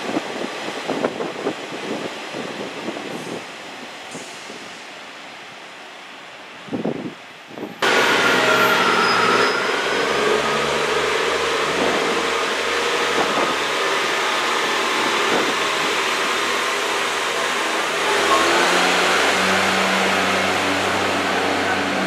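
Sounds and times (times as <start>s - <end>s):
diesel train engine droning: 7.6s - 22.0s.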